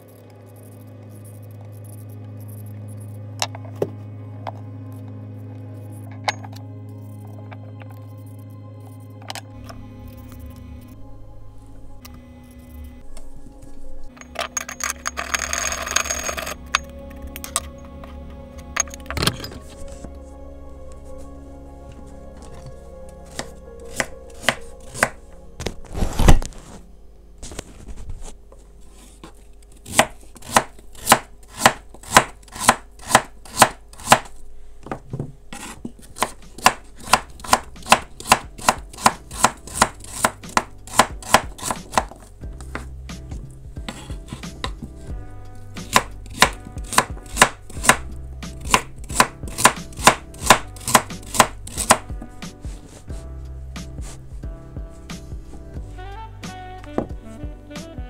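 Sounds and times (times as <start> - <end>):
knife chopping on cutting board: 23.3 - 25.2, 29.8 - 34.3, 35.6 - 42.9, 45.8 - 48.0, 48.6 - 52.1.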